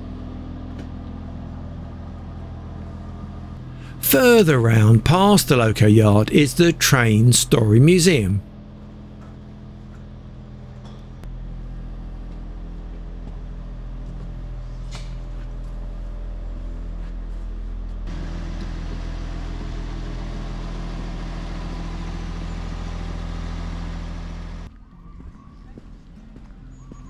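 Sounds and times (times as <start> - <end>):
engine idling: 18.1 - 24.7.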